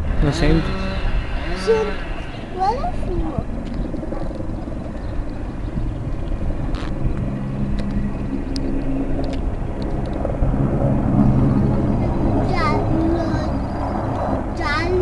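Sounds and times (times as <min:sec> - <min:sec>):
helicopter engine and rotor drone: 0:02.4 - 0:15.0.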